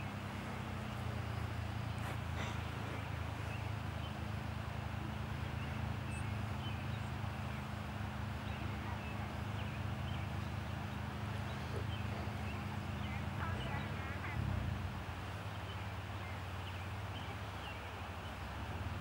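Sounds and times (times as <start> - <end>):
low hum and hiss: 0.0 - 19.0.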